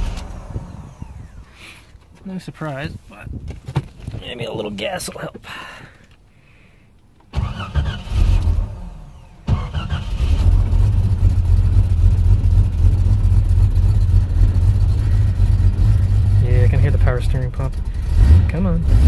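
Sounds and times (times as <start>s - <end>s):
engine cranking on starter: 0.0s - 2.0s, 7.3s - 12.0s
car engine running: 0.0s - 2.1s, 8.1s - 19.0s.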